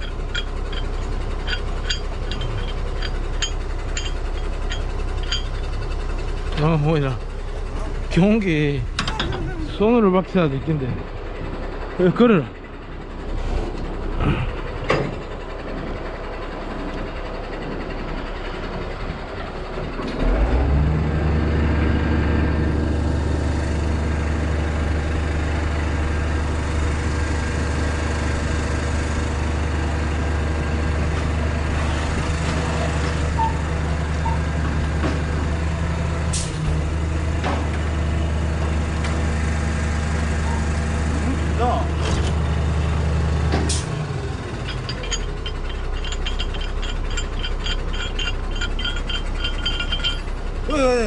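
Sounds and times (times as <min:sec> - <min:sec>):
hook and slings clanking: 0:00.0 - 0:05.9, 0:44.6 - 0:50.4
truck diesel engine running: 0:00.0 - 0:51.0.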